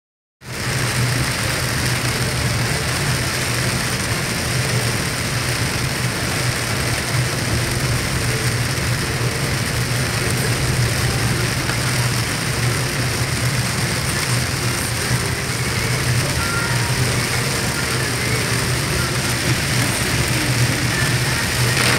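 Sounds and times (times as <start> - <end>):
heavy rain on a car: 0.4 - 21.9
wet road noise: 0.4 - 21.9
low engine hum: 0.5 - 21.9.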